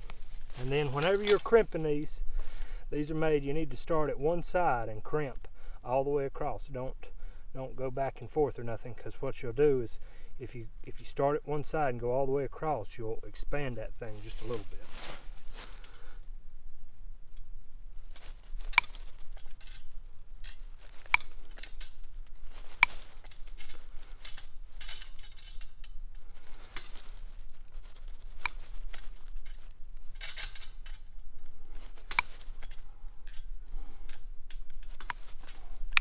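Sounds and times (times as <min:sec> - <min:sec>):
handling rustle: 0:00.0 - 0:03.6, 0:13.6 - 0:16.3, 0:17.4 - 0:36.0.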